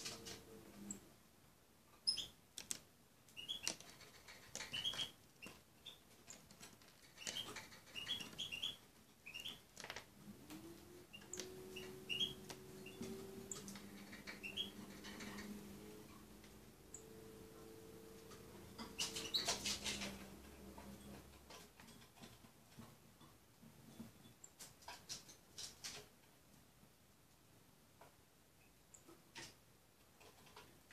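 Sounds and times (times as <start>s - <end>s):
low steady hum: 10.1s - 21.6s.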